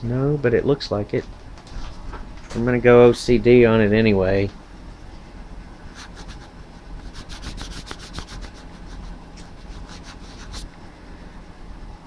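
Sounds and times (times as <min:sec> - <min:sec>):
wiping a camera lens: 0:06.0 - 0:10.7.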